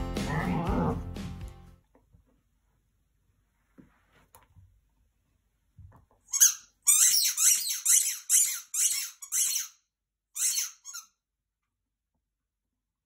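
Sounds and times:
dog toy squeaking: 0:06.3 - 0:09.8, 0:10.4 - 0:11.1.

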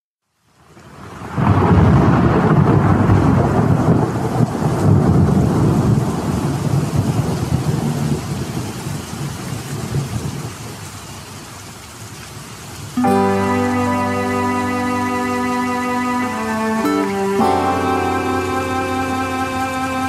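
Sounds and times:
low rumble of thunder: 0:01.2 - 0:10.8
heavy rain hiss: 0:01.3 - 0:20.0.

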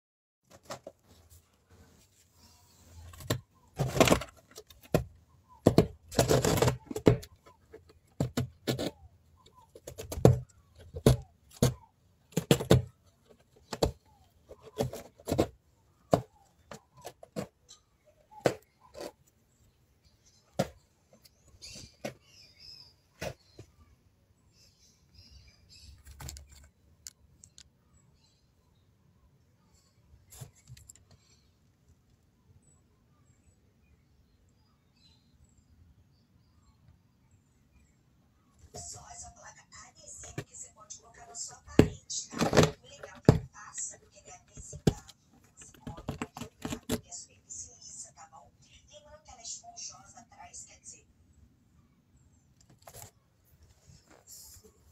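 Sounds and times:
rabbits gnawing cardboard: 0:00.4 - 0:23.8, 0:25.6 - 0:27.4, 0:38.6 - 0:47.6, 0:52.5 - 0:54.9.

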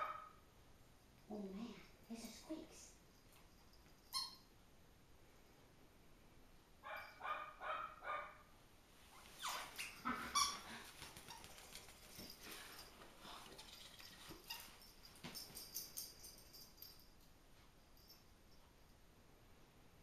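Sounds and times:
small dog yipping: 0:09.4 - 0:11.8.

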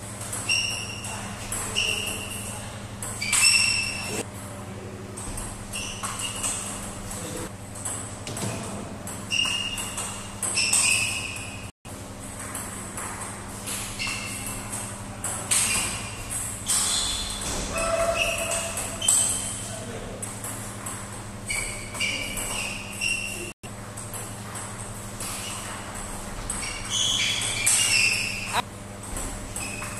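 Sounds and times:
table tennis ball hits: 0:12.3 - 0:23.3.

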